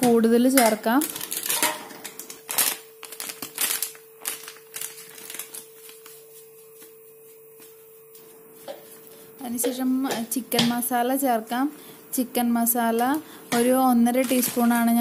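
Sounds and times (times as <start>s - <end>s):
paper packet crinkling: 0.0s - 7.8s, 12.8s - 15.0s
faint steady hum: 0.0s - 15.0s.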